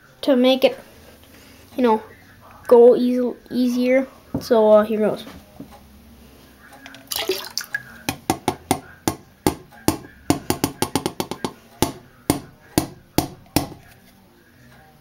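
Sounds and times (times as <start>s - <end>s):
sharp taps and plops into water: 6.9s - 10.0s.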